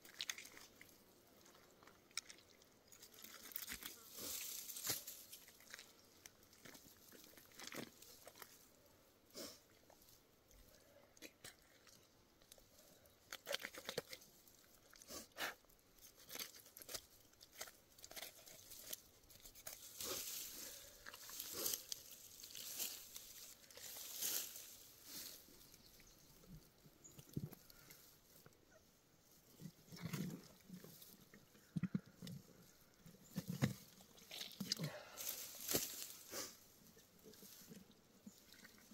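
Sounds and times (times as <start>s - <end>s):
soft crackles: 0.0s - 38.9s
wet tearing and handling: 16.0s - 24.8s.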